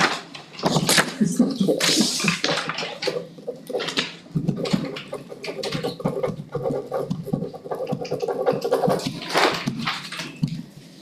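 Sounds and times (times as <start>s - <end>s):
papers rustling: 7.7s - 11.0s.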